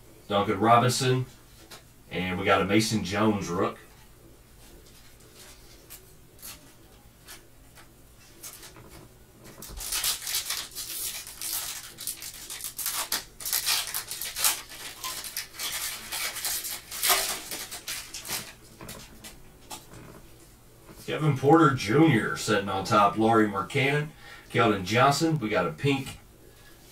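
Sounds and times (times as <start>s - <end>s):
wrapper crinkling: 8.4s - 20.2s.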